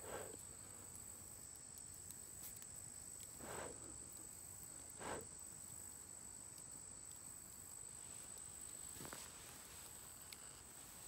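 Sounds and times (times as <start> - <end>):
faint high-pitched insect drone: 0.0 - 11.0
faint clicks: 0.3 - 3.4, 10.2 - 10.6.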